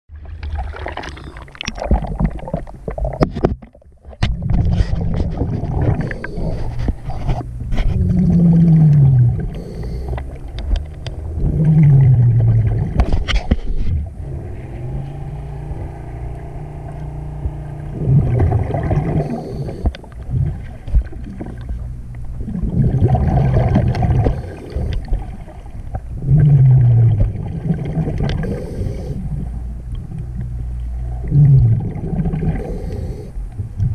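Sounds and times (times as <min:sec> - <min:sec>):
bubbling rush: 0:00.1 - 0:03.3, 0:11.2 - 0:13.2, 0:13.8 - 0:29.5, 0:31.0 - 0:33.3
splashing water: 0:00.1 - 0:03.4
low underwater motor hum: 0:00.1 - 0:33.9.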